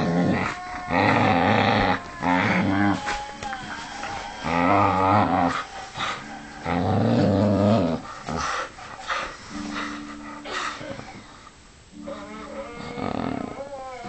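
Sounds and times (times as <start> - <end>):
dog growling: 0.0 - 9.3, 12.0 - 14.0.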